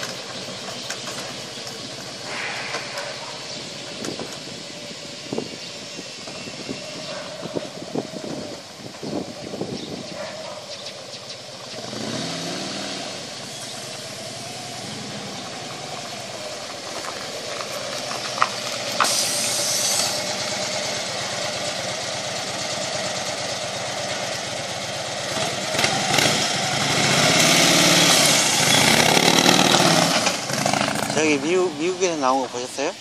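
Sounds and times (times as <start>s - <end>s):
short hiss: 2.2s - 3.5s, 19.0s - 20.2s
motorcycle engine running: 19.6s - 31.8s.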